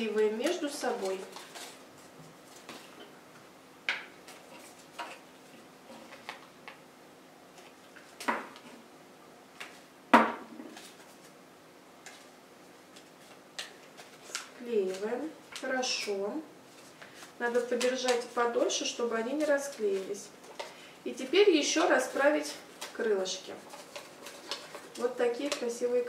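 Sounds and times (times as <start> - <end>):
soft paper handling: 0.0 - 3.1, 10.6 - 11.4, 12.0 - 20.8, 21.6 - 26.0.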